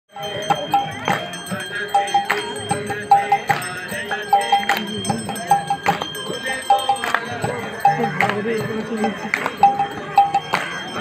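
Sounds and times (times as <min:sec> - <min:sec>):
bell ringing: 0:00.1 - 0:11.0
sharp percussion strikes: 0:00.1 - 0:11.0.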